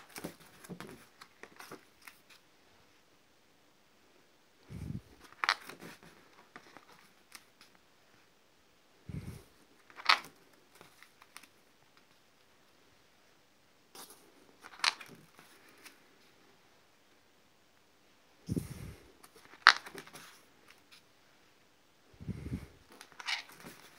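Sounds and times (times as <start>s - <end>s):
stiff paper pages turning: 0.0s - 2.4s, 5.2s - 7.7s, 9.8s - 11.6s, 14.0s - 16.0s, 19.2s - 21.0s, 22.9s - 23.9s.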